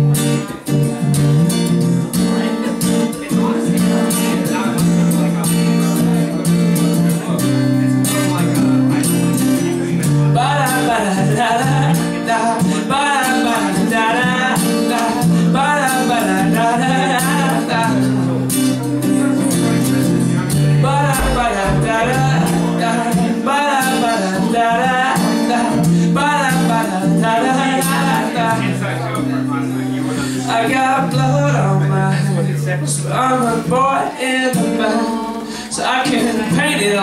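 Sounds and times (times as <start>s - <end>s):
acoustic guitar strumming: 0.0s - 37.0s
man singing: 2.4s - 37.0s.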